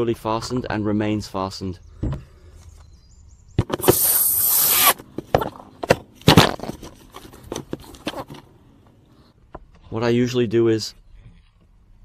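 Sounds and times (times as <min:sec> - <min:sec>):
cordless drill grinding: 0:03.8 - 0:05.0.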